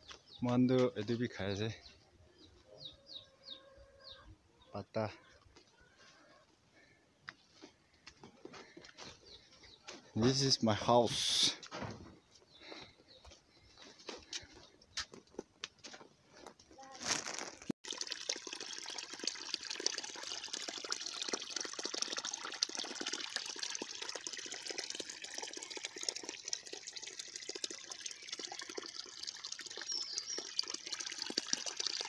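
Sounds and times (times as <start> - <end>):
stream splashing over stones: 17.0 - 32.0.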